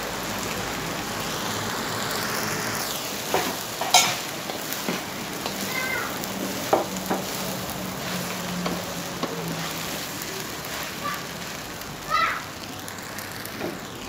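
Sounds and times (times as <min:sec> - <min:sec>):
food sizzling in a wok: 0:00.0 - 0:14.0
metal spatula scraping pan: 0:03.3 - 0:05.7.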